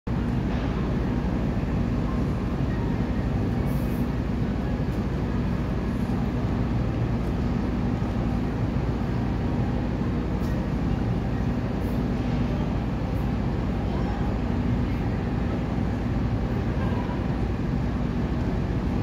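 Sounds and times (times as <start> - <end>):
constant hum: 0.1 - 19.0
low mechanical rumble: 0.1 - 19.0.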